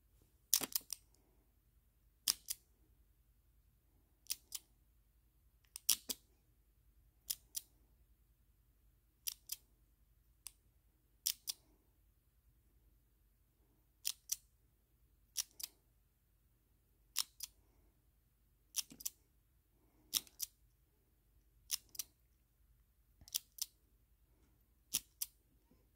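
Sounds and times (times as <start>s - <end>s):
padlock shackle clicking: 2.2s - 2.6s, 14.0s - 14.4s, 24.9s - 25.4s.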